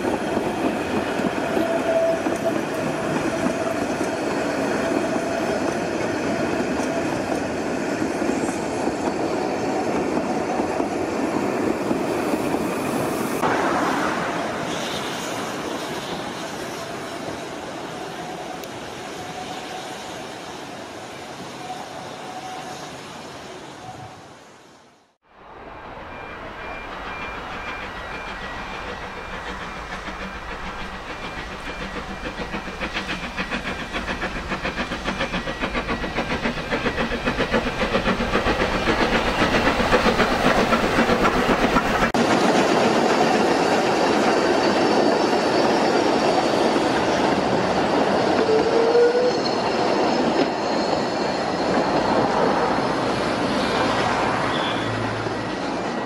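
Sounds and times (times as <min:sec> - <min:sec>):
steam locomotive exhaust chuffs: 0:26.0 - 0:49.3.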